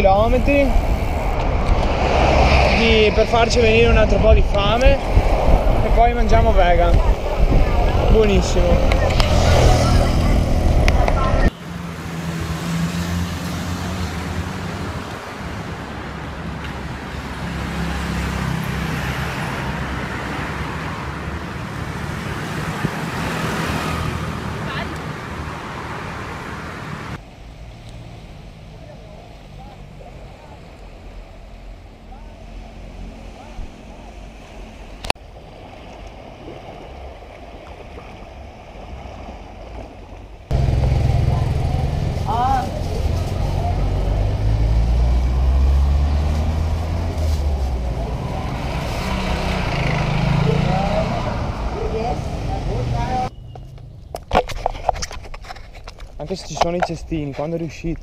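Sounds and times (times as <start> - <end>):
wind rumble on microphone: 0.0 - 11.5
road traffic passing: 0.0 - 37.6, 38.2 - 58.0
small waves lapping at shore: 33.9 - 40.5
loud engine running: 40.5 - 43.8.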